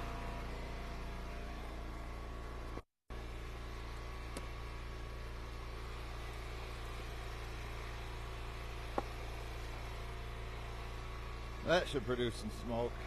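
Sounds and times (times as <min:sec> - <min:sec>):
small gas engine idling: 0:00.0 - 0:13.0.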